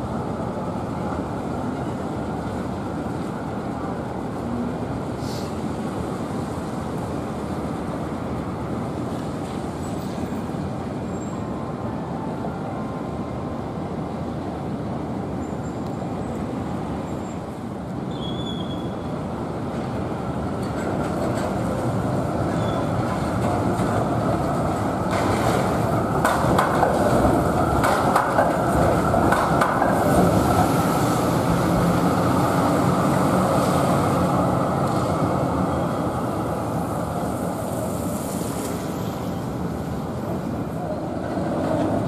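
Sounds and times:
trams running on wet street: 0:00.0 - 0:42.0
tyres hissing on wet road: 0:04.5 - 0:07.6, 0:29.9 - 0:40.8
tram wheels clacking on rail joints: 0:19.5 - 0:39.6, 0:40.3 - 0:42.0.

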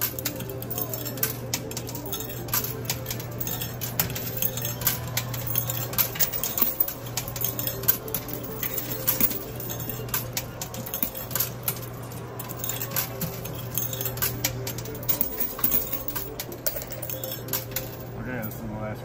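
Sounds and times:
coins clinking on metal: 0:00.0 - 0:18.6.

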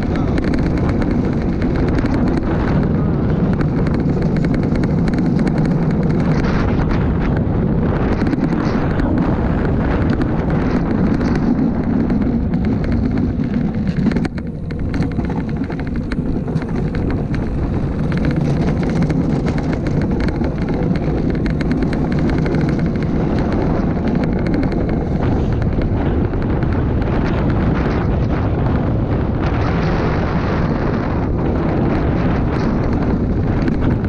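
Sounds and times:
rattles and clicks: 0:00.0 - 0:34.0
wheels rumbling on concrete: 0:00.0 - 0:34.0
wind on microphone: 0:00.0 - 0:34.0
cart jolt: 0:08.0 - 0:28.4.

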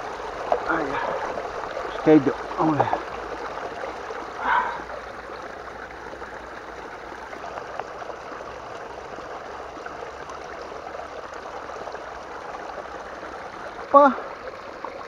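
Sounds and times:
small stream flowing: 0:00.0 - 0:15.0.

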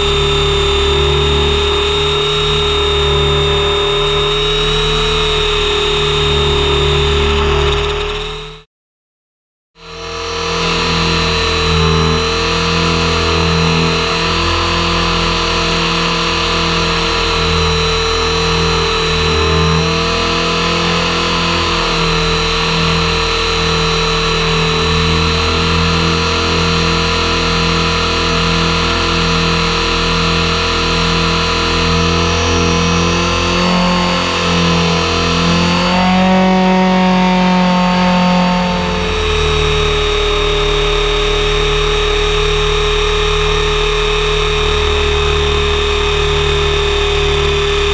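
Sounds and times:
rotor whirring: 0:00.0 - 0:08.6
motor and gear whine: 0:00.0 - 0:08.7, 0:09.8 - 0:47.9.

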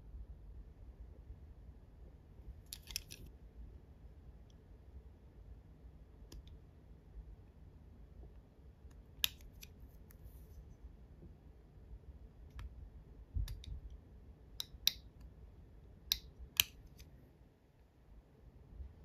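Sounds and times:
tweezers clicking on metal spokes: 0:14.6 - 0:15.1, 0:16.1 - 0:17.1.

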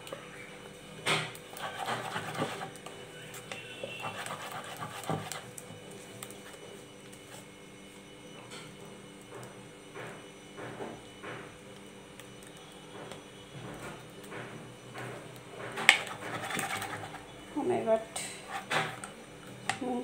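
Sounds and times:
spoon stirring thick batter: 0:01.3 - 0:07.5, 0:15.0 - 0:17.4, 0:18.2 - 0:19.8.

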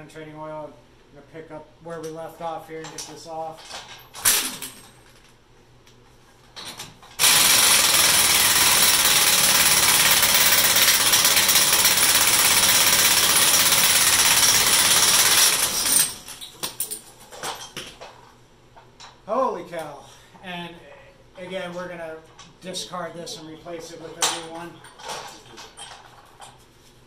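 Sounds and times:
pneumatic impact wrench hammering: 0:04.2 - 0:04.8, 0:07.2 - 0:16.4.

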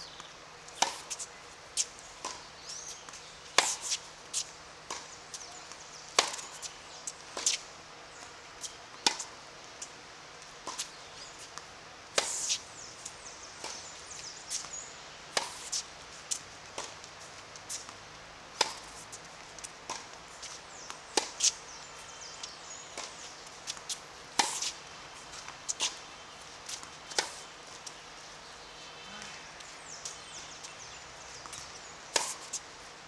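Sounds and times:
racket striking tennis ball: 0:00.8 - 0:01.2, 0:03.6 - 0:04.0, 0:06.2 - 0:06.6, 0:15.3 - 0:15.8, 0:18.6 - 0:19.0, 0:23.0 - 0:24.8, 0:31.5 - 0:32.6
tennis ball bouncing: 0:00.8 - 0:01.3, 0:02.2 - 0:02.5, 0:03.1 - 0:05.1, 0:06.2 - 0:06.6, 0:09.0 - 0:09.3, 0:15.3 - 0:17.0, 0:18.6 - 0:19.0, 0:19.8 - 0:21.6, 0:23.0 - 0:26.0, 0:31.4 - 0:32.6.

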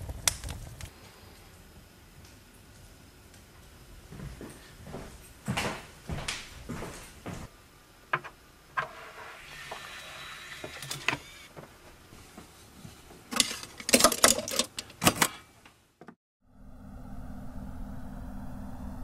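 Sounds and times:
clicks and rattles: 0:13.3 - 0:15.4.

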